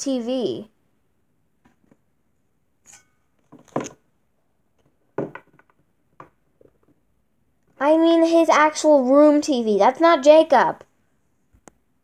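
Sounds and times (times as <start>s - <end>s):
plastic toy figures knocking: 5.2s - 7.0s.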